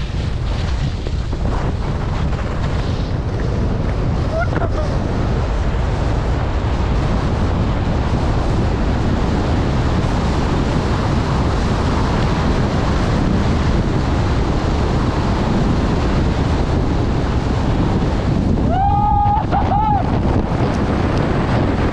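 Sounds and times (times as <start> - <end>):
skis hissing over snow: 0.0 - 3.4
wind rushing over microphone: 0.0 - 21.9.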